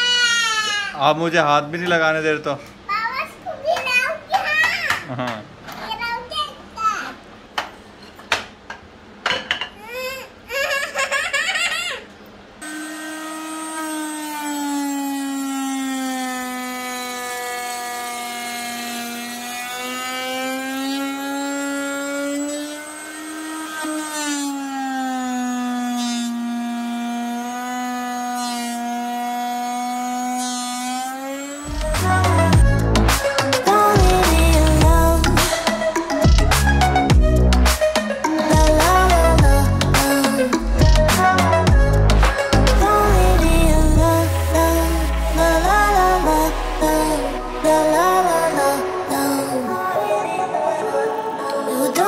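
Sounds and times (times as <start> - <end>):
child talking and giggling: 2.9 - 7.2
router whining: 12.6 - 52.0
music with heavy beat: 31.7 - 49.9.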